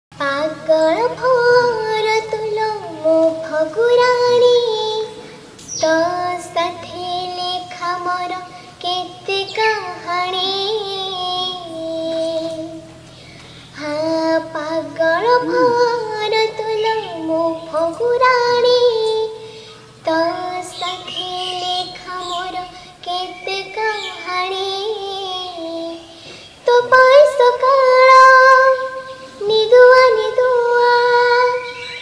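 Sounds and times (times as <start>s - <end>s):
girl singing: 0.2s - 13.0s, 13.7s - 32.0s.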